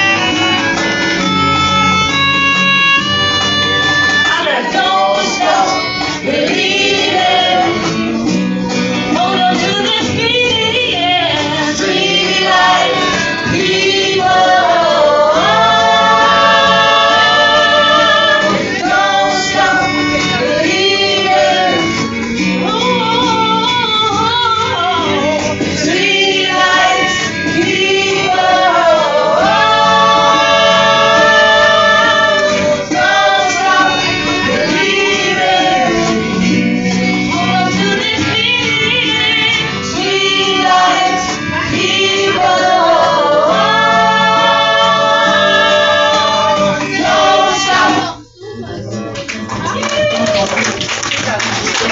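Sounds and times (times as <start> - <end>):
group singing: 0.0 - 49.2
strummed acoustic guitars: 0.0 - 51.9.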